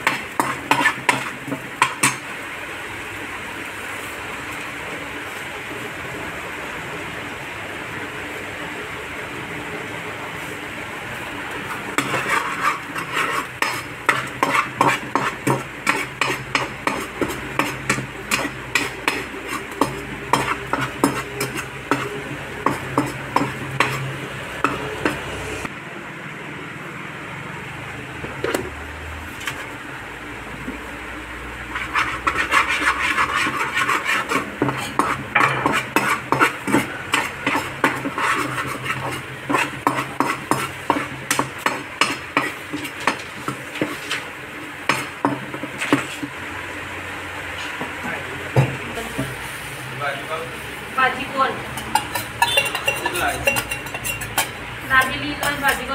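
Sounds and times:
garlic frying in oil: 0.0s - 25.7s, 27.7s - 55.9s
spoon clinking against metal pan: 51.7s - 55.9s.

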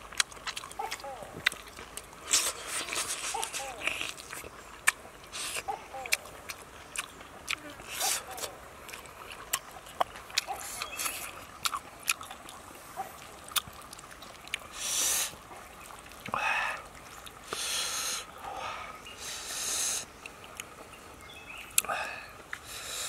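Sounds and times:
wet mouth clicks: 0.1s - 12.6s
loud noisy breaths: 14.7s - 15.4s, 17.5s - 20.1s, 21.8s - 23.0s.

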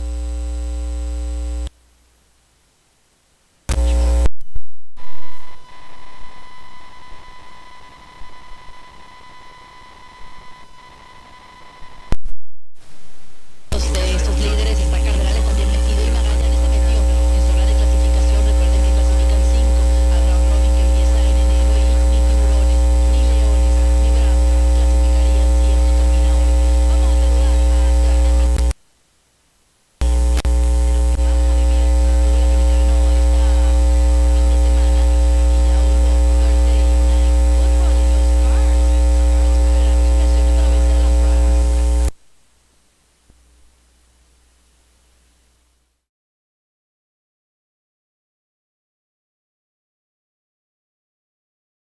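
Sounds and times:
faint radio broadcast: 0.0s - 4.4s, 13.6s - 46.1s
mains hum with static: 0.0s - 46.1s.

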